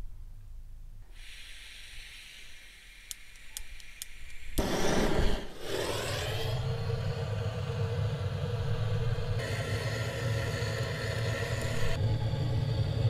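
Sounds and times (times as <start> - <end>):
gas hissing from torch: 1.1 - 13.0
torch flame burning loudly: 4.0 - 13.0.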